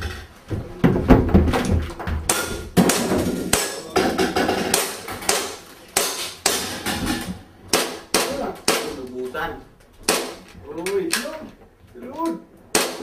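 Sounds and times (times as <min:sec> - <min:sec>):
footsteps on wooden stairs: 0:00.0 - 0:03.4.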